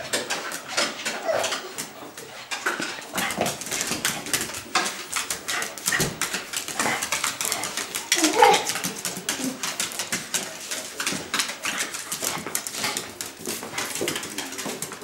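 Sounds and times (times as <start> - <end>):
claws clicking on tiled floor: 0.0 - 15.0
dog whimpering and whining: 1.1 - 1.8.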